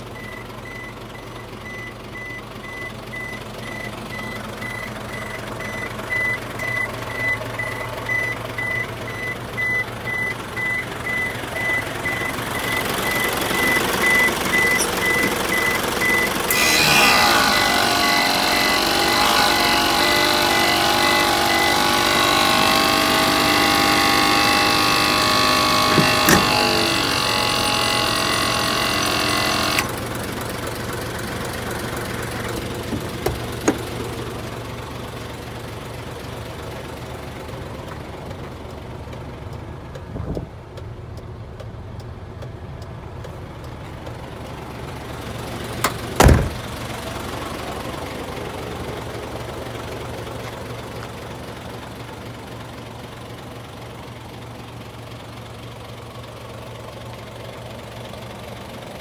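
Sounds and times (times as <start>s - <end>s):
diesel truck engine idling: 0.0s - 59.0s
shrill multi-tone whine: 11.6s - 29.9s.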